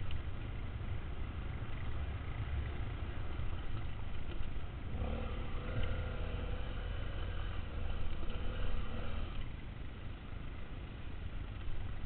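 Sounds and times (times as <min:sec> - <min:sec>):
motorcycle engine under throttle: 0:04.3 - 0:09.6.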